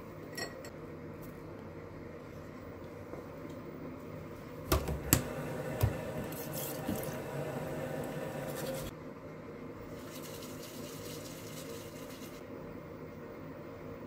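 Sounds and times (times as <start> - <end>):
steady low hum: 0.0 - 14.0
toothbrush rustling: 10.0 - 12.4.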